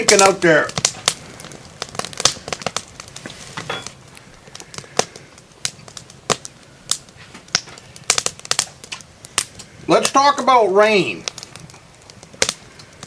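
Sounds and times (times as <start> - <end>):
sharp clicks and crackles: 0.0 - 10.2, 11.2 - 13.0.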